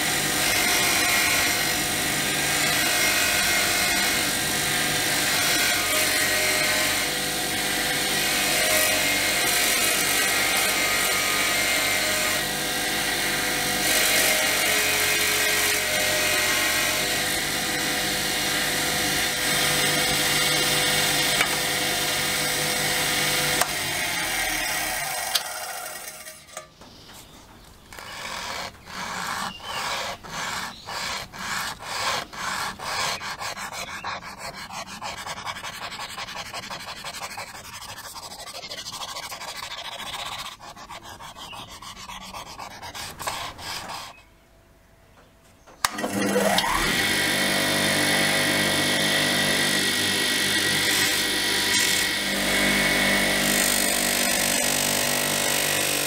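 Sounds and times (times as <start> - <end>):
hand sanding strokes: 27.9 - 44.2
buffing machine whine: 45.8 - 53.5.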